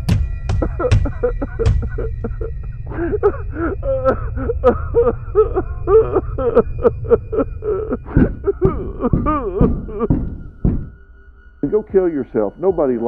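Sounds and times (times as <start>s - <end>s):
steady low hum: 0.0s - 11.6s
person vocalizing: 0.6s - 10.9s
heavy thuds: 8.0s - 11.1s.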